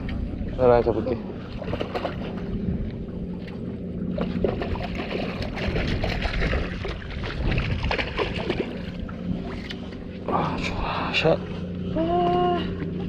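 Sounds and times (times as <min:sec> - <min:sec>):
boat engine idling: 0:00.0 - 0:13.0
fish thrashing and splashing: 0:01.5 - 0:02.6, 0:03.6 - 0:09.8.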